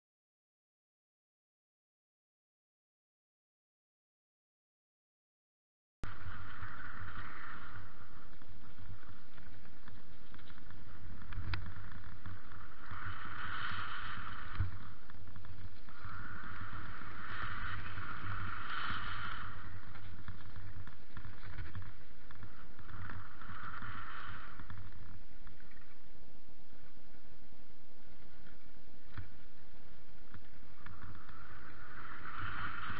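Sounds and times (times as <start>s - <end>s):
wind rushing over microphone: 6.0s - 27.2s, 28.0s - 32.9s
low rumble: 6.0s - 32.9s.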